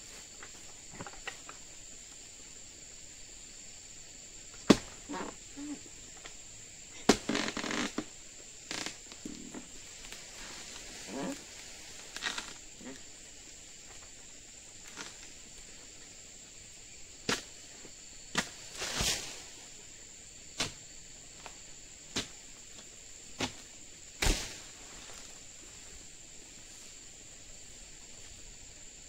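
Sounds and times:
high insect drone: 0.0 - 29.0
sickle knocking and cracking wood: 4.6 - 5.3, 7.0 - 8.1, 12.1 - 12.6, 17.2 - 17.6, 18.3 - 19.4, 20.6 - 20.8, 21.4 - 25.3.

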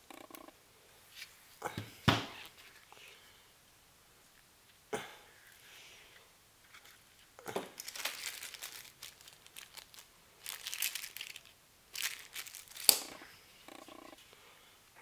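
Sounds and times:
plastic bag crinkling: 7.6 - 13.2.

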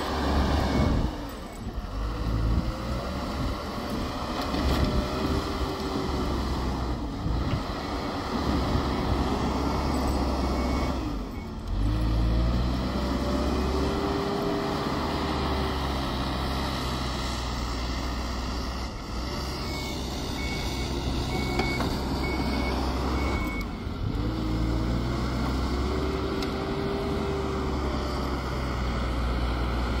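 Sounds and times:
diesel engine running: 0.0 - 30.0
reversing alarm beeping: 19.5 - 23.9.

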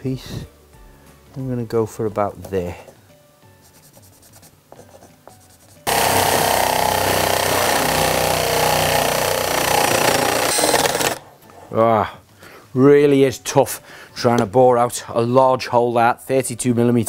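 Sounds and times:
power drill boring into wood: 5.9 - 11.2.

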